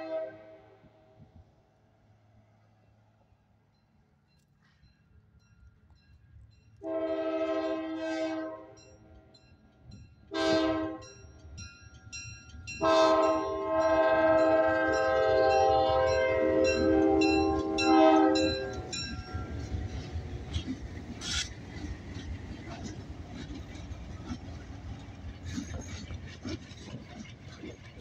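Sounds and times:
locomotive air horn: 0.0 - 0.8, 6.8 - 8.8, 10.3 - 11.1, 12.8 - 18.9
train wheel noise: 8.8 - 28.0
crossing bell dinging: 10.8 - 20.3.

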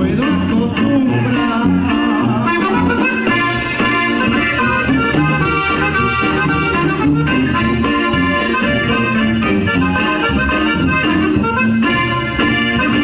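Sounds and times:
accordion melody: 0.0 - 13.0
regional band music: 0.0 - 13.0.

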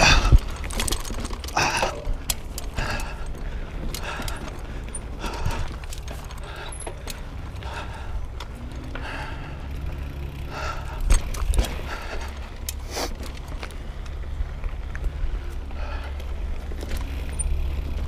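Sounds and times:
bike rattling and clicking: 0.0 - 18.0
bike tyres rumbling: 0.0 - 18.0.

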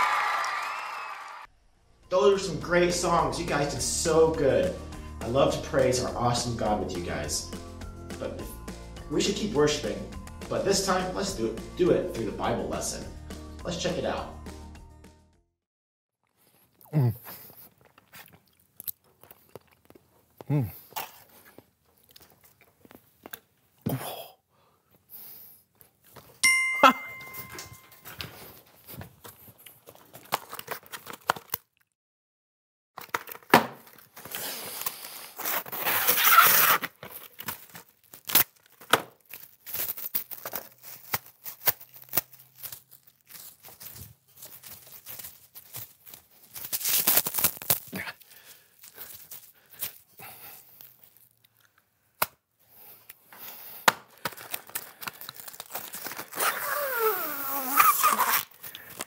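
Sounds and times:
cling wrap crinkling and tearing: 28.4 - 31.8, 33.0 - 51.6, 54.1 - 59.0.

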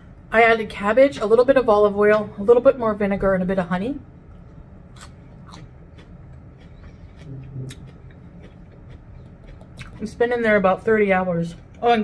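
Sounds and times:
mouth chewing and lip-smacking: 4.3 - 10.2.

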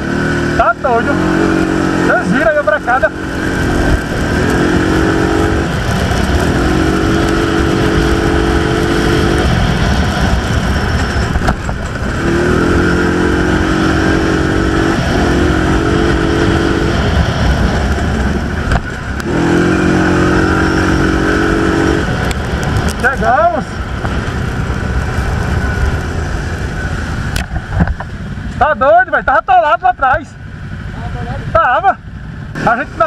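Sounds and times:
low rumble: 0.0 - 29.4
atv engine running: 0.0 - 33.0.

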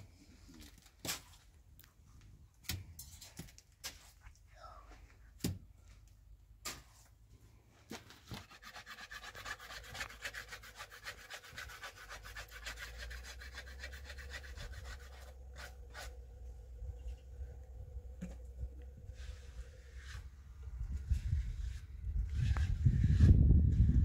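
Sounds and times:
rubbing or scraping strokes: 7.9 - 17.1, 19.0 - 24.0.

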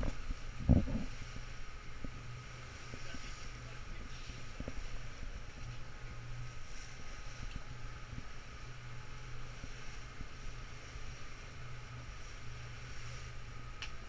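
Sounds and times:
wind buffeting microphone: 0.0 - 2.2
motorboat motor droning: 0.0 - 14.0
water rushing along hull: 0.0 - 14.0.

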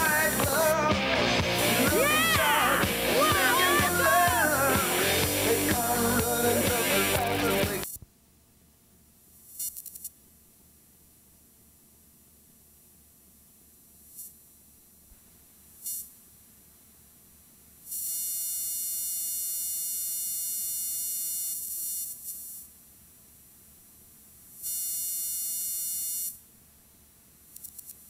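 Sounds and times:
electronic buzzing tone: 0.0 - 8.0, 9.5 - 10.1, 17.9 - 22.6, 24.6 - 26.4
faint steady hiss: 0.0 - 28.0.

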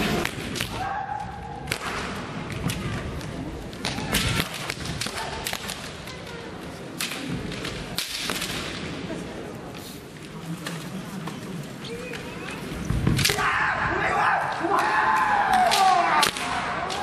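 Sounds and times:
bamboo swords clashing: 0.0 - 6.1, 6.9 - 8.9, 13.0 - 17.0.

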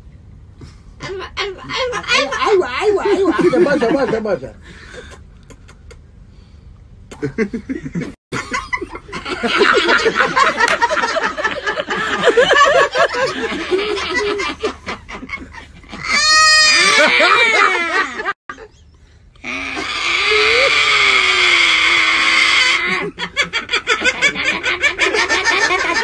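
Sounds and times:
man laughing hard: 1.0 - 5.2, 7.2 - 18.4, 19.5 - 26.0
high-pitched held cry: 16.0 - 18.3, 19.4 - 23.0.

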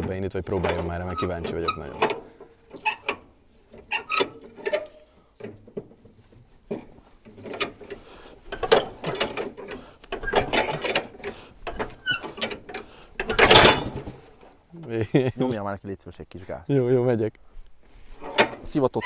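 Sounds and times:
metallic clicks and clunks: 0.0 - 14.3, 18.2 - 18.8.

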